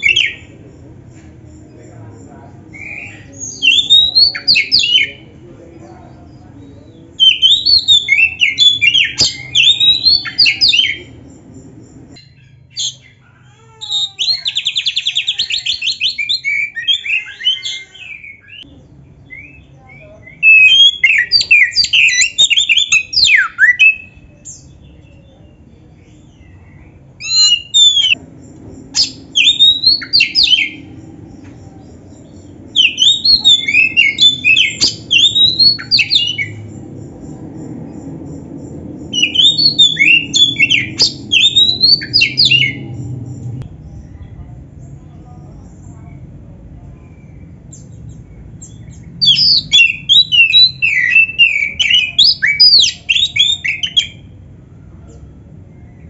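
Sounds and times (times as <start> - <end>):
bird singing whistled trills: 2.7 - 5.2, 6.6 - 13.2, 13.9 - 26.6, 27.2 - 28.2, 28.8 - 44.2, 47.1 - 54.4.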